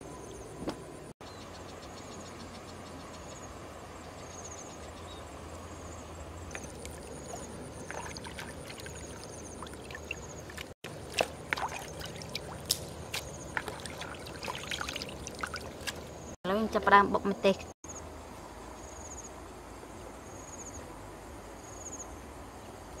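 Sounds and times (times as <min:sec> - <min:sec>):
water splashing and dripping: 0:06.5 - 0:16.4.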